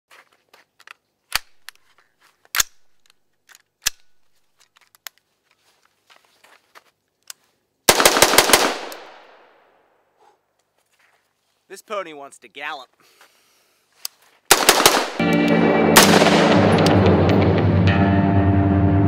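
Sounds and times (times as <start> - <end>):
rifle handling clicks: 0.8 - 5.2
rapid gunshots with echo: 7.9 - 9.4, 14.5 - 15.3, 16.0 - 17.5.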